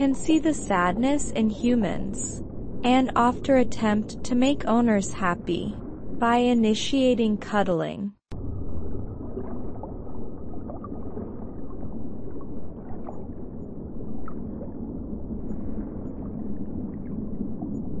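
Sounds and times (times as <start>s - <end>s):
underwater water noise: 0.0s - 7.6s, 8.3s - 18.0s
faint rising blips: 8.3s - 18.0s.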